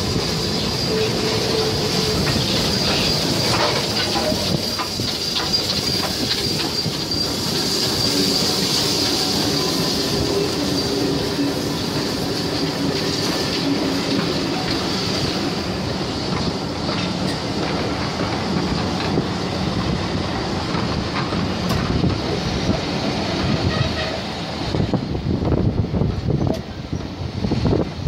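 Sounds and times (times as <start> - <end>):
high wheel squeal: 0.0 - 18.6, 23.1 - 24.7
train wheels rumbling on rail: 0.0 - 28.0.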